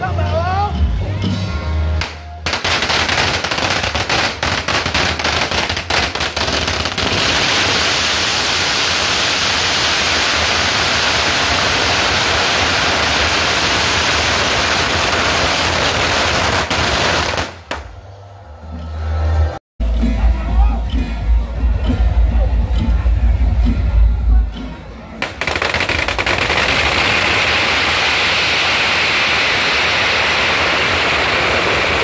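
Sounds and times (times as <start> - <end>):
firecrackers going off: 2.0 - 18.0, 25.2 - 32.0.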